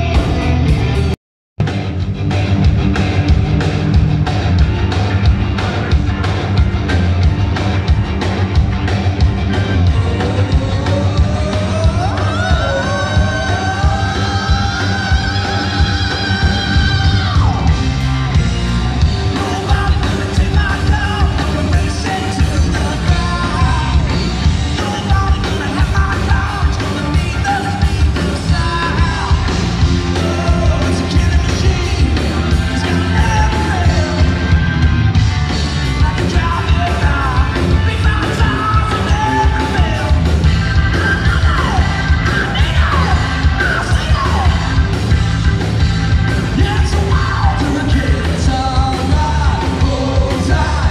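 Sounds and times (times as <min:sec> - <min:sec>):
bass: 0:00.0 - 0:50.9
drums: 0:00.0 - 0:50.9
electric guitars: 0:00.0 - 0:50.9
lead singer: 0:09.2 - 0:50.9.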